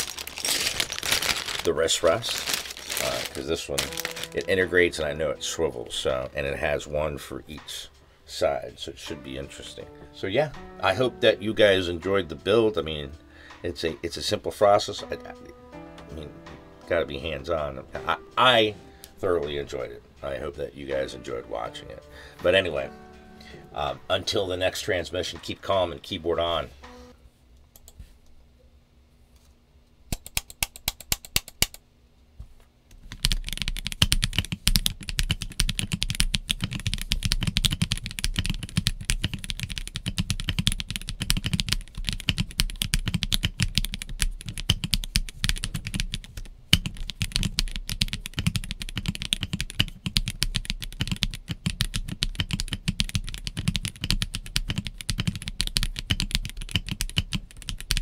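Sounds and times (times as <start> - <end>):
mechanical keyboard typing: 33.0 - 58.0.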